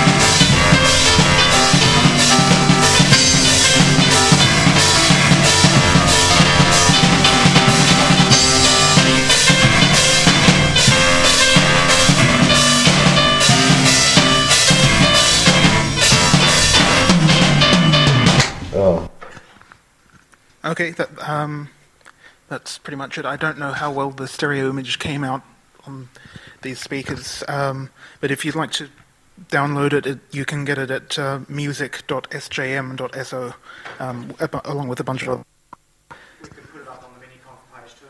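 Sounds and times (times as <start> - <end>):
keyboard music over loudspeakers: 0.0 - 18.6
drum kit beat: 0.0 - 18.7.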